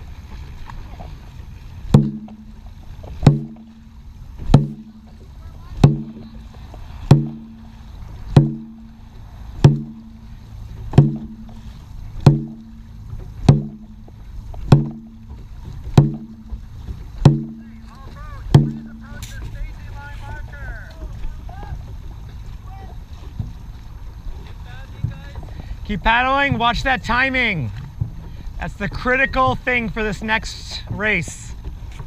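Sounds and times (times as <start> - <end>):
drum struck with padded stick: 2.0 - 2.4, 3.2 - 3.6, 4.5 - 5.0, 5.8 - 6.3, 7.1 - 7.6, 8.3 - 8.8, 9.6 - 10.0, 10.9 - 11.5, 12.2 - 12.6, 13.4 - 13.9, 14.7 - 15.1, 16.0 - 16.4, 17.2 - 17.8, 18.5 - 19.2.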